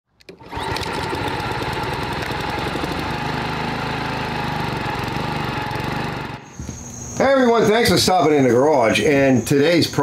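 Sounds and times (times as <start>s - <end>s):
line trimmer engine running: 0.2s - 6.6s.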